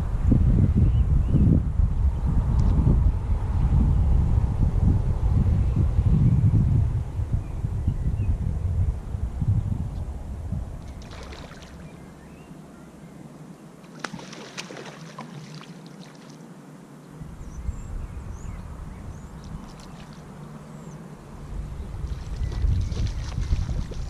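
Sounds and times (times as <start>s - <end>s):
wind rumbling on microphone: 0.0s - 12.8s, 17.1s - 24.0s
light water splashes: 10.8s - 12.0s, 13.8s - 16.6s, 19.3s - 20.7s, 22.0s - 24.0s.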